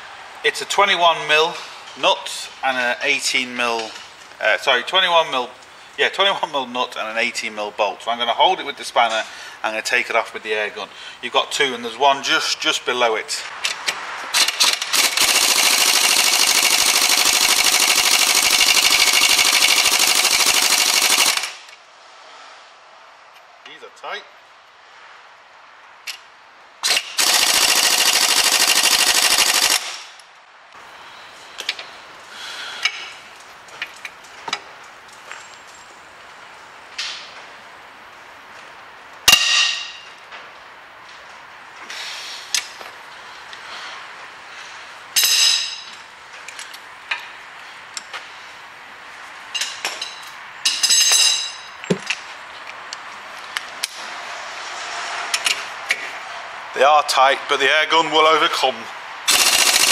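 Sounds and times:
impact wrench rattling: 14.3 - 21.7, 26.8 - 30.0, 59.3 - 59.9.

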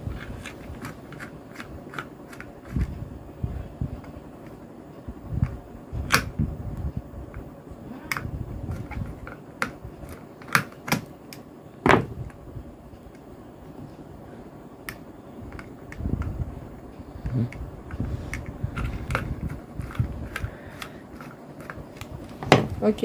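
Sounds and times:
low handling rumble: 11.9 - 23.0.

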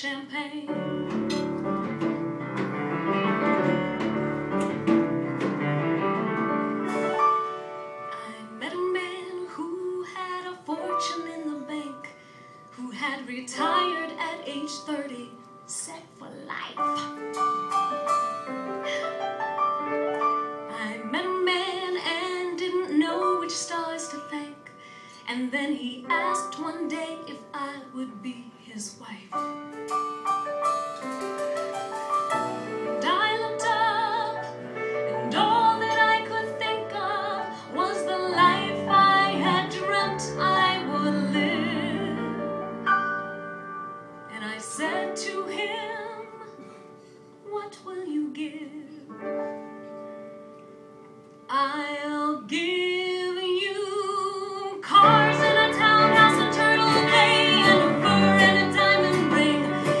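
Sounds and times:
woman singing a ballad: 0.0 - 1.0, 8.1 - 17.2, 20.6 - 29.5, 32.9 - 42.5, 44.3 - 46.8, 47.4 - 49.2, 51.5 - 60.0
piano accompaniment: 0.0 - 60.0.

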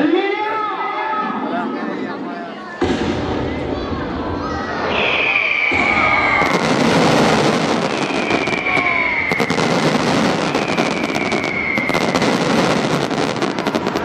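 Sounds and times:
falling firework whistle: 4.8 - 14.0
fireworks crackling and popping: 5.2 - 14.0.

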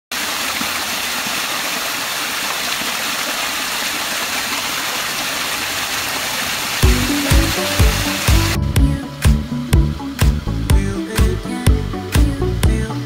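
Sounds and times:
stream cascading over stones: 0.1 - 11.6.

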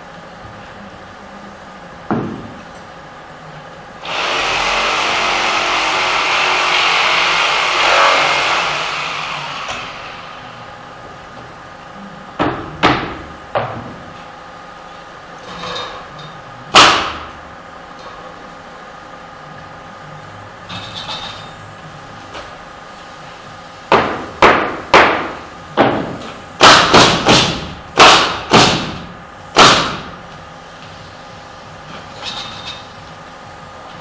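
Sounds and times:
loud steady hiss: 4.0 - 11.1.

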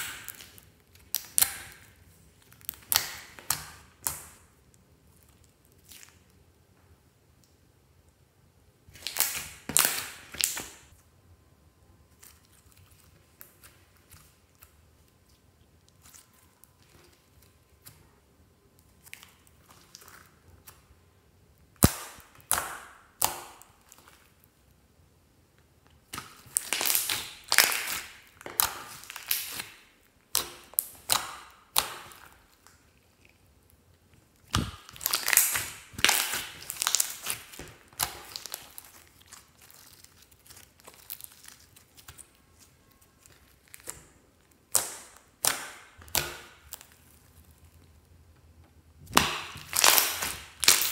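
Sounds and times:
hands squishing slime: 0.0 - 6.4, 8.8 - 11.0, 12.1 - 24.6, 25.9 - 48.0, 49.0 - 50.9
slime air pockets popping: 34.4 - 38.9, 49.0 - 50.9.

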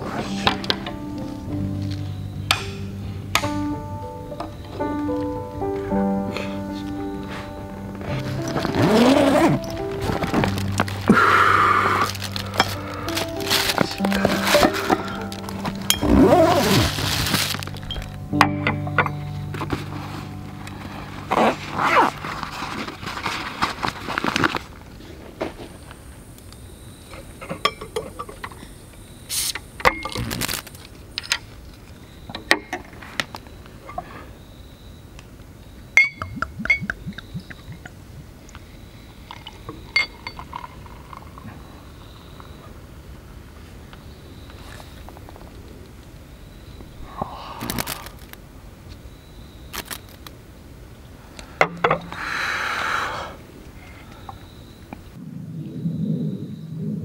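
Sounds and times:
hiss: 0.0 - 0.9, 29.2 - 29.8, 52.1 - 53.9
glass clinking: 14.5 - 16.5, 27.6 - 28.6, 36.0 - 37.0, 39.3 - 41.4
brief hiss: 29.3 - 29.7.

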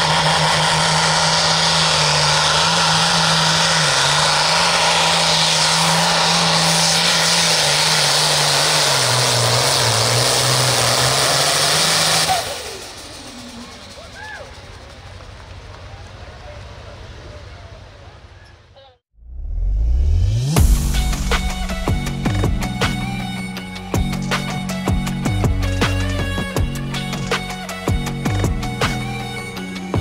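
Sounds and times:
tractor diesel engine at full throttle: 0.0 - 17.2, 20.6 - 30.0.

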